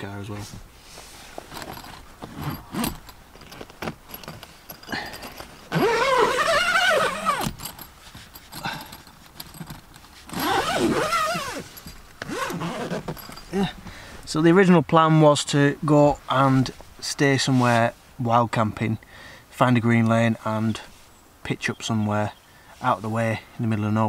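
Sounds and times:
zip being pulled: 1.5 - 3.6, 5.2 - 7.8, 9.5 - 13.4
fabric rustling: 9.2 - 14.3.

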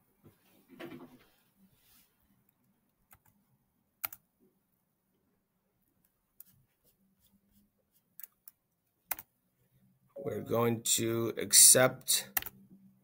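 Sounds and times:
computer mouse clicks: 2.6 - 3.4, 4.0 - 4.2, 8.2 - 9.3, 12.3 - 12.6.

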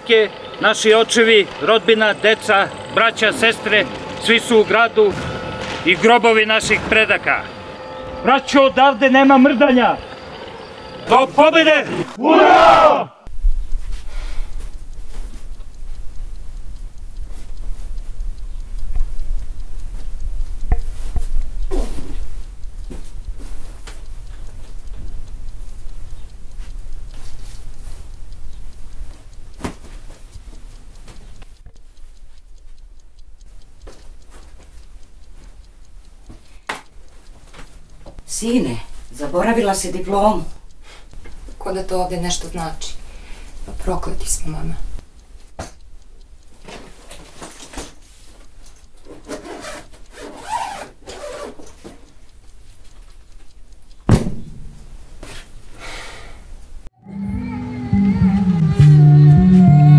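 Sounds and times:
quiet regular ticking: 0.0 - 12.2, 13.3 - 57.0
loud knock: 54.1 - 54.8
loud thump: 54.1 - 55.0
music: 57.0 - 59.9.

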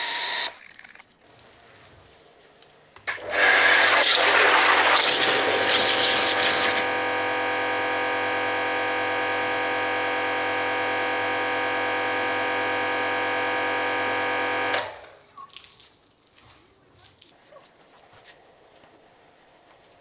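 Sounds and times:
pressure washer motor humming: 0.0 - 0.5, 3.1 - 15.2.

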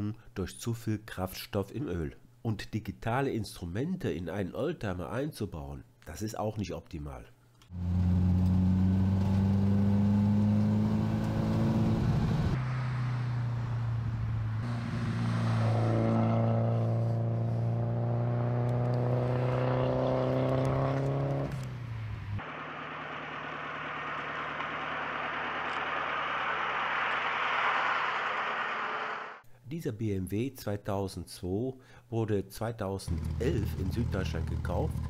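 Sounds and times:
car engine running under load: 17.5 - 29.4, 33.1 - 35.0.

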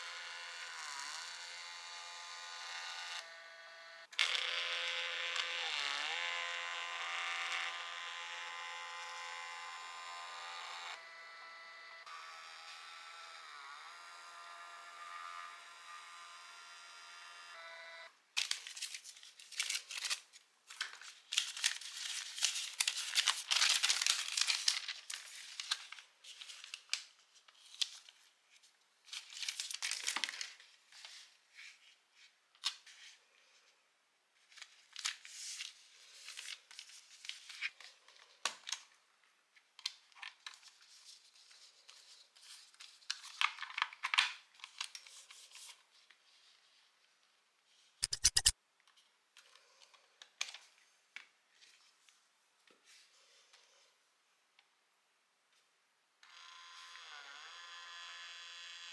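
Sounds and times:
label paper rustling and peeling: 18.4 - 32.0.

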